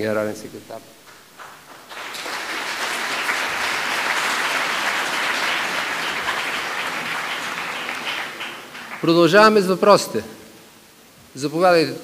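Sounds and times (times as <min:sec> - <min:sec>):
audience applauding: 0:01.0 - 0:09.8.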